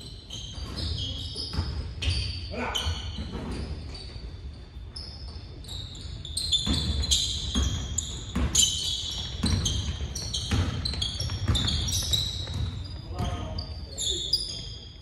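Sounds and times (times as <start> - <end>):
sneakers squeaking on court: 0.0 - 15.0
basketball bouncing on wooden floor: 6.5 - 13.7.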